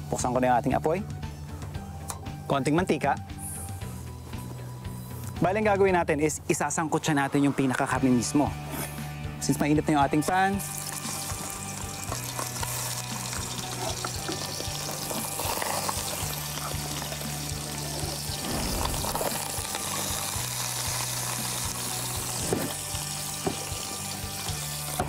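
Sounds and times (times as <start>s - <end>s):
background music: 0.0s - 25.0s
chicken sizzling in hot oil: 10.5s - 25.0s.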